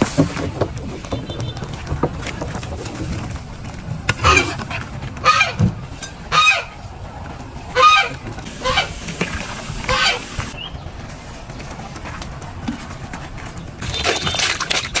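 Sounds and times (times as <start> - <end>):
goose-like fowl calling: 5.2 - 5.6, 6.3 - 6.8, 7.7 - 9.0, 9.9 - 10.3.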